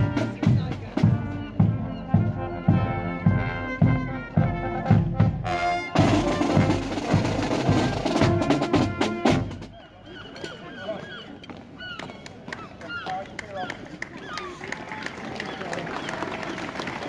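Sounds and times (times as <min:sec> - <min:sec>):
drum beat: 0:00.0 - 0:09.7
brass marching band playing: 0:00.0 - 0:10.0.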